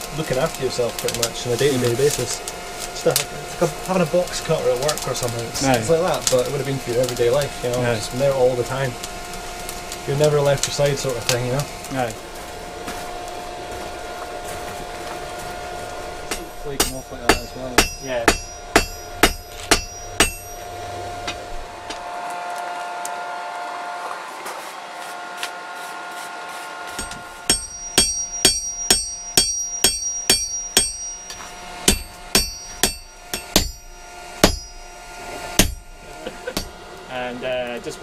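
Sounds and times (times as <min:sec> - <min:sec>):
hammer striking steel on anvil: 0:16.3 - 0:21.4, 0:26.9 - 0:36.8.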